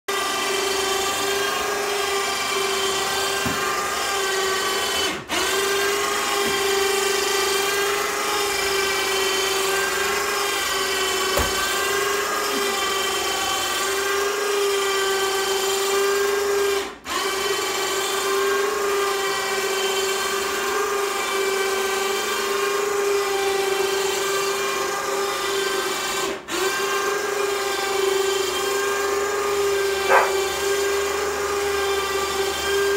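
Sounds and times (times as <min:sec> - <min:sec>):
electric winch motor whining: 0:00.1 - 0:32.9.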